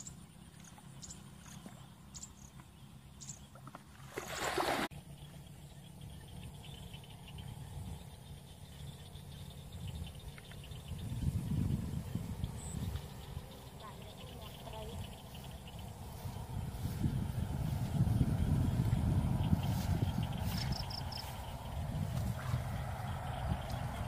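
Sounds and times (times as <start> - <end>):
water splashing from bucket: 3.7 - 4.9.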